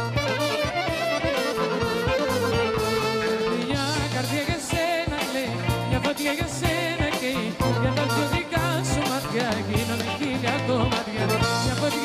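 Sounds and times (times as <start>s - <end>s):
live band playing: 0.0s - 12.0s
woman singing with vibrato: 3.0s - 12.0s.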